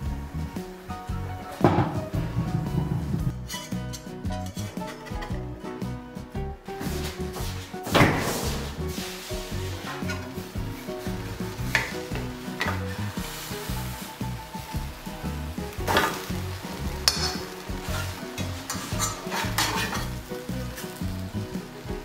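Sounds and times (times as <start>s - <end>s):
batter sizzling in a frying pan: 0.0s - 22.0s
spatulas scraping and knocking pan: 1.5s - 5.5s, 6.8s - 13.7s, 15.7s - 21.0s.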